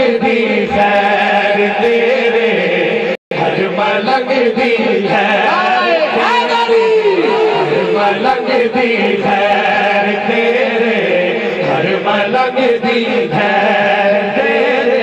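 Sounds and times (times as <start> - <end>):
voices chanting: 3.4 - 15.0.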